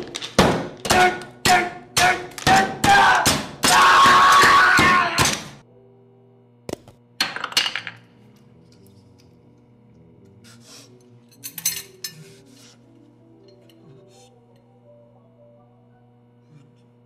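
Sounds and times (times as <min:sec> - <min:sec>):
soft background music: 0:05.6 - 0:07.1, 0:08.0 - 0:17.0
metal and crockery clinking: 0:11.2 - 0:12.4.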